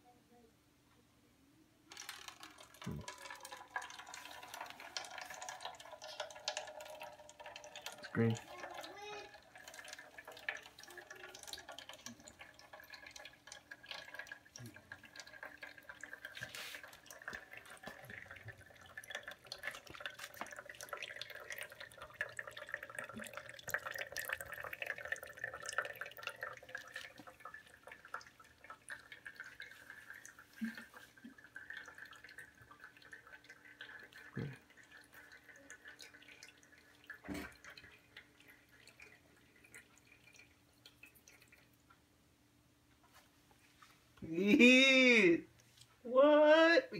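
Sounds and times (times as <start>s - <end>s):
water dripping and trickling: 1.9s - 42.1s.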